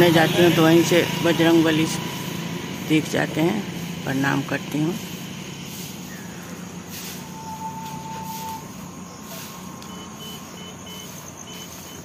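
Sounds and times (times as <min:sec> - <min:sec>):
whistle-like tone: 0:07.0 - 0:12.0
faint high beeps: 0:07.2 - 0:12.0.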